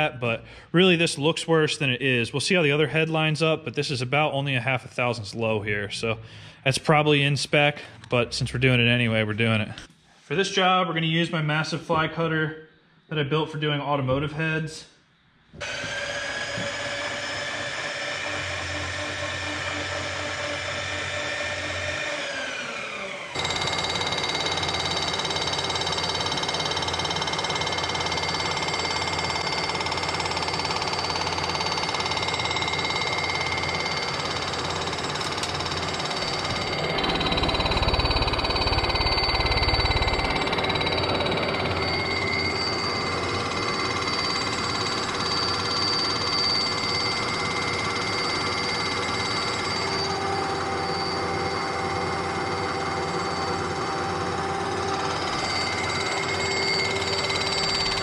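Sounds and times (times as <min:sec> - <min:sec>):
milling machine whine: 0:15.6 - 0:58.0
low rumble: 0:36.8 - 0:41.8.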